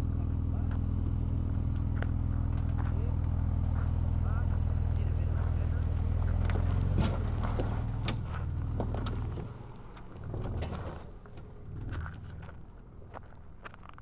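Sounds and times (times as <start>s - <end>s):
truck engine running at low revs: 0.0s - 14.0s
stones crunching under tyres: 0.7s - 14.0s.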